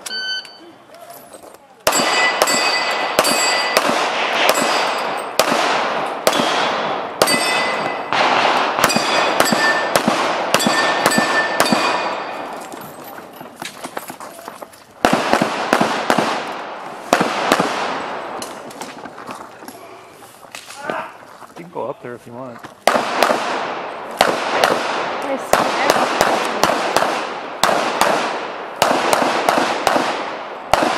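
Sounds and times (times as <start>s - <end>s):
metallic ring: 0.0s - 3.8s, 7.2s - 8.1s, 8.8s - 10.0s, 10.6s - 14.4s
handgun shots echoing: 1.8s - 12.6s, 22.9s - 30.9s.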